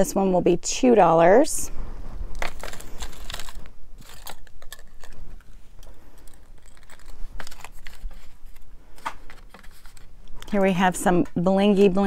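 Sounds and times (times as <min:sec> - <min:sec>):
jewelry clinking and rattling: 0:02.4 - 0:08.4.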